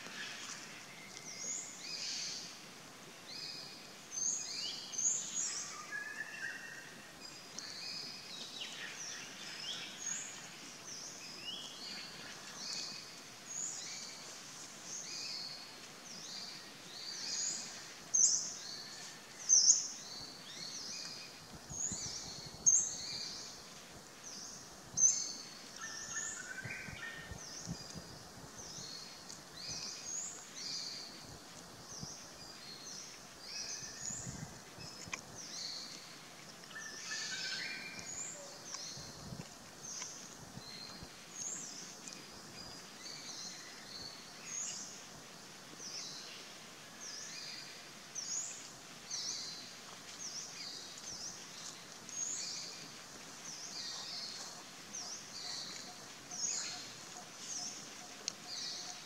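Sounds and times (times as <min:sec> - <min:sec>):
outdoor hiss: 0:00.0 - 0:59.0.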